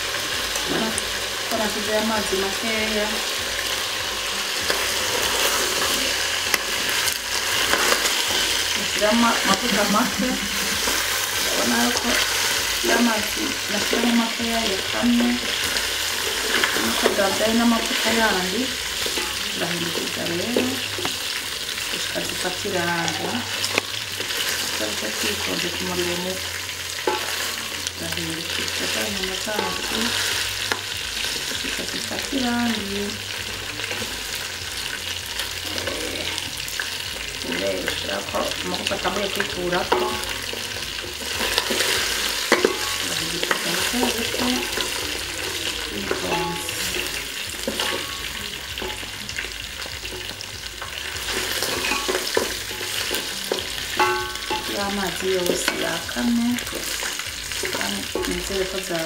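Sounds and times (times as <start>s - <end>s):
meat and onions sizzling: 0.0s - 59.0s
wooden spatula scraping pot: 4.7s - 22.4s.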